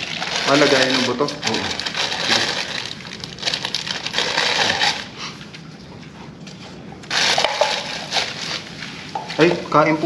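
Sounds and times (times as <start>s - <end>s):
plastic bags crinkling: 0.0s - 5.2s, 7.1s - 9.8s.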